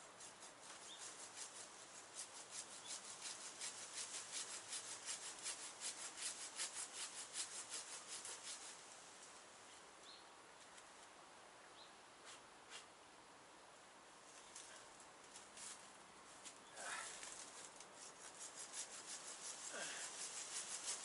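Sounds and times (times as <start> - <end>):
handsaw cutting branch: 2.2 - 8.8, 18.0 - 21.0.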